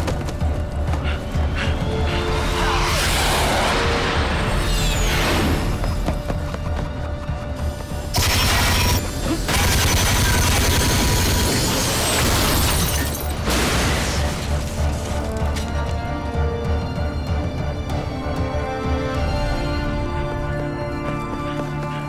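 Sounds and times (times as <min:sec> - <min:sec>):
dense gunfire: 0:08.2 - 0:11.6
glass shattering: 0:11.3 - 0:14.5.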